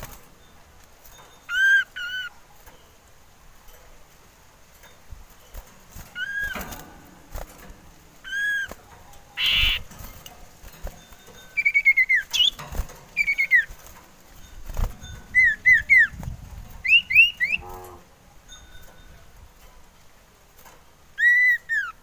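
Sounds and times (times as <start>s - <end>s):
bird whistling calls: 1.5s - 2.3s, 6.2s - 6.6s, 8.2s - 8.8s, 9.4s - 9.9s, 11.6s - 12.6s, 13.2s - 13.7s, 15.3s - 16.2s, 16.8s - 17.9s, 21.2s - 22.0s
bird rasping call: 9.4s - 9.9s, 16.9s - 18.1s.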